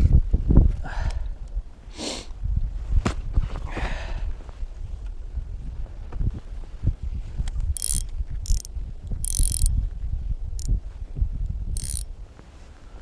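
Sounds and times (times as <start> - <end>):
wind rumble on microphone: 0.0 - 13.0
fishing reel whirring: 7.8 - 9.7, 11.8 - 12.1.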